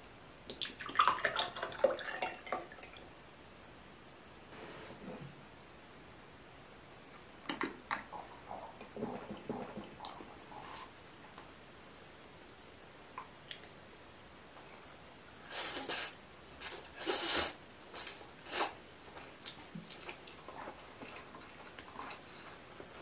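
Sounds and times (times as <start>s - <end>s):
small mouth clicks: 7.4s - 10.3s, 13.2s - 13.8s
loud noodle slurps: 15.5s - 18.8s.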